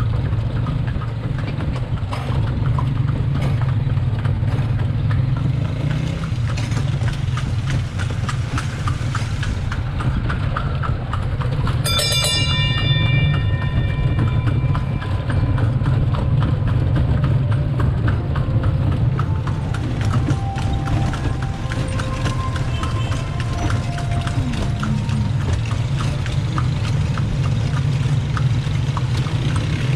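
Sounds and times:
cart wheels rolling over stones: 0.0s - 29.9s
hooves clip-clopping on cobblestones: 0.0s - 29.9s
bell ringing: 11.7s - 17.4s, 18.0s - 26.5s.

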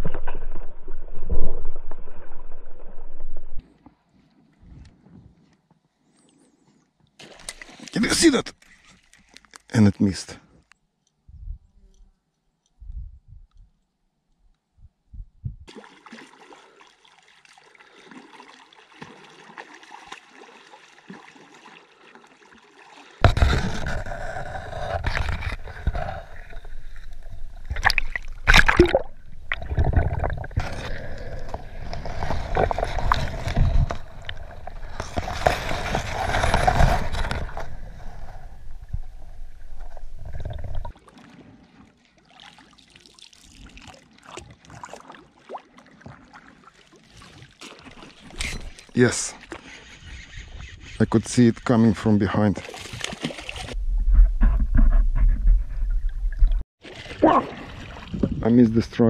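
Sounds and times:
muffled underwater gurgling and sloshing: 23.2s - 40.9s.

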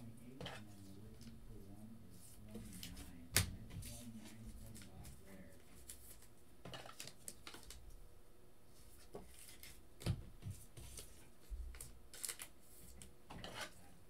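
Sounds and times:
trading cards rustling on table: 3.8s - 7.8s, 8.8s - 9.8s, 10.4s - 13.8s.

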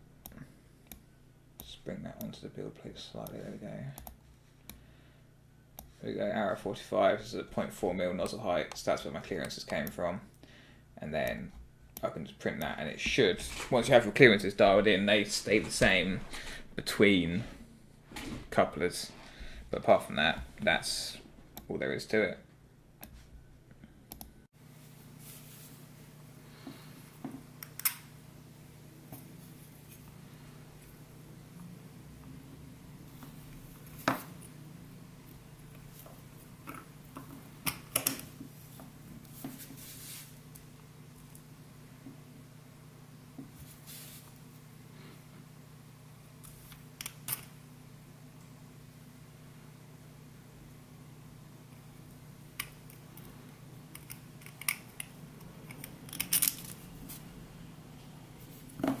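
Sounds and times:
plastic parts clicking and scraping: 54.0s - 56.8s.

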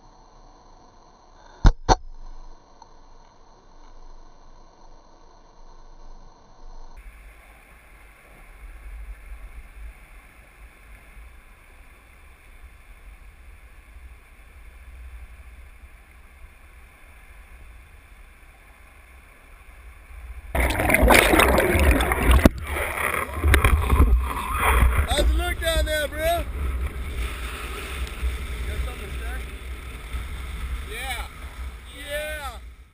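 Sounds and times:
wind: 0.0s - 32.9s
muffled underwater rumble: 3.5s - 32.0s
water splashing: 20.5s - 32.7s.

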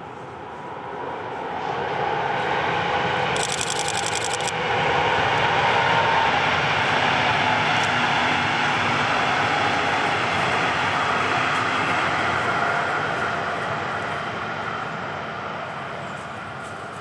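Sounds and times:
train wheels rushing on rail: 0.0s - 17.0s
high clicks rattling: 3.4s - 4.5s.

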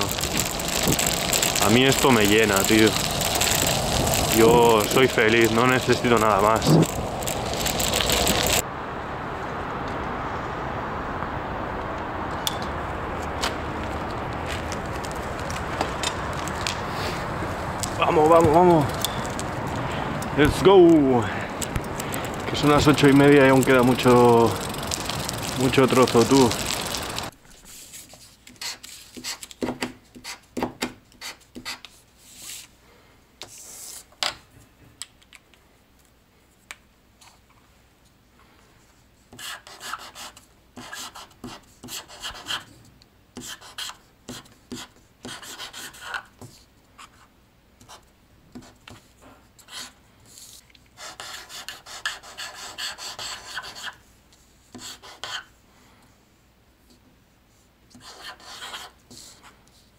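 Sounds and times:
rubbing and scraping: 43.4s - 54.0s.

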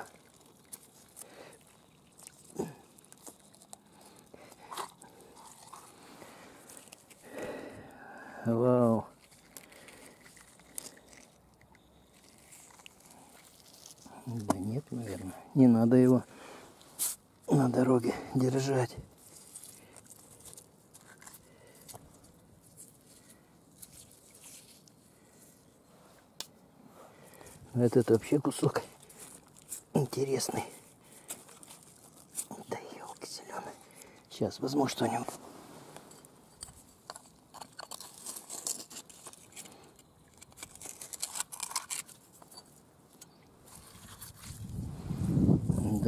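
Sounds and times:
fingers scraping in wet gravel: 0.0s - 7.3s, 12.1s - 15.4s, 16.8s - 25.0s, 34.8s - 42.4s, 43.6s - 46.0s.

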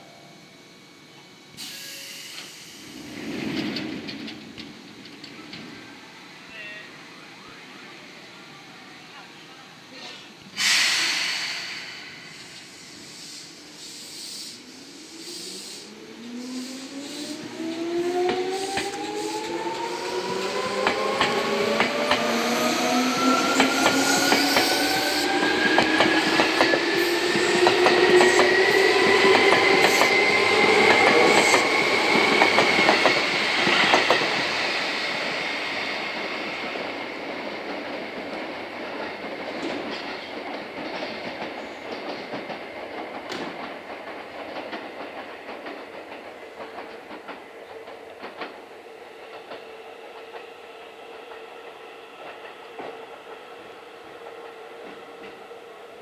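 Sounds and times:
electric train motors whining: 11.0s - 37.0s.

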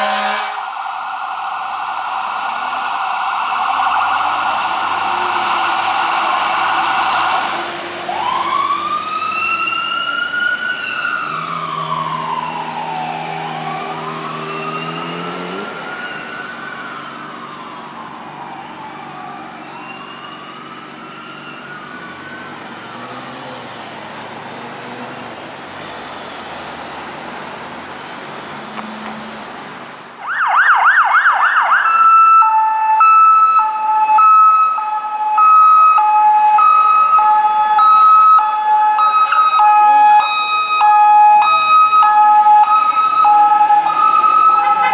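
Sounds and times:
low horn blast: 0.0s - 0.7s
police siren yelp and hi-lo: 0.0s - 25.4s, 30.2s - 44.9s
fire engine siren wailing: 0.0s - 29.6s, 30.2s - 44.9s.

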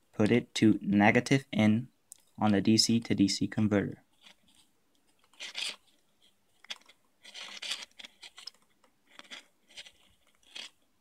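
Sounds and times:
fingers rubbing wire: 5.2s - 6.0s, 6.6s - 10.8s.

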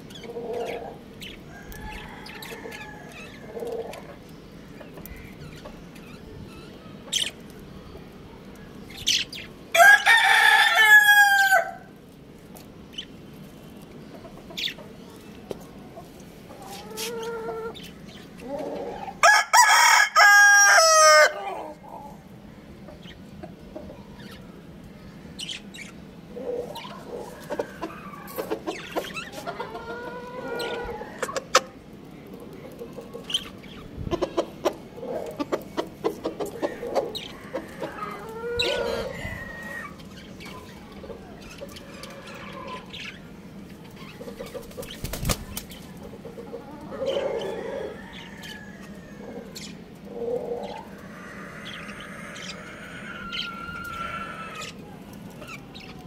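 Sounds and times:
chickens clucking: 0.0s - 11.4s, 12.5s - 56.0s
rooster crowing: 1.5s - 3.5s, 9.7s - 11.9s, 18.9s - 21.7s, 36.9s - 40.0s, 47.0s - 49.6s, 50.7s - 54.8s.

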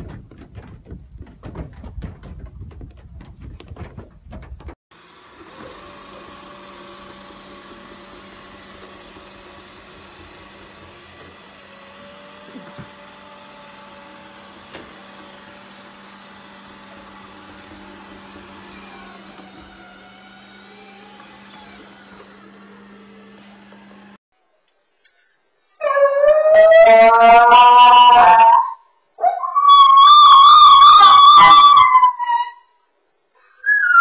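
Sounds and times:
robot vacuum cleaner humming: 5.0s - 24.2s.

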